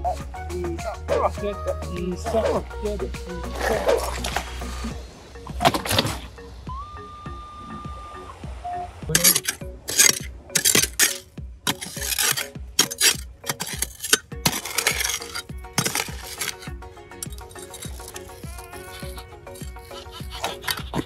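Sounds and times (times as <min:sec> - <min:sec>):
faint background music: 0:00.0 - 0:21.0
pick digging into pebbles: 0:03.5 - 0:04.9, 0:09.1 - 0:21.0
stones clinking: 0:09.1 - 0:21.0.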